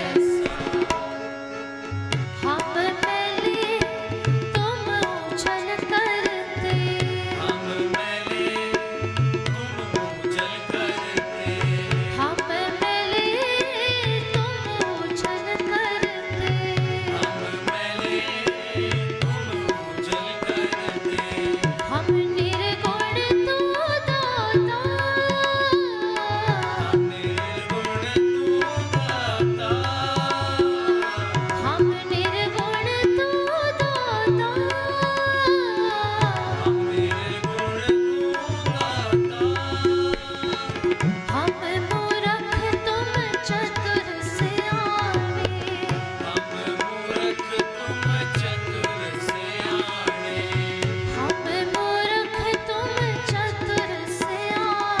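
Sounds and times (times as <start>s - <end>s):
tabla beat: 0.0s - 55.0s.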